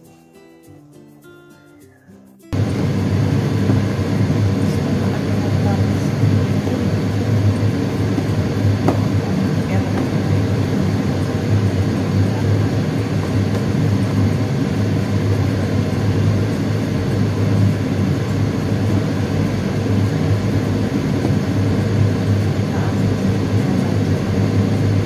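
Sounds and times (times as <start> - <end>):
extractor fan droning: 2.5 - 25.0.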